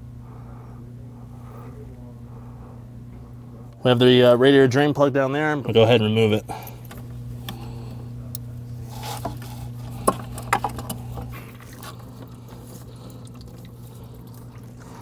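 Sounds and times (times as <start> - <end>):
steady low hum: 0.0 - 15.0
coolant draining: 5.6 - 15.0.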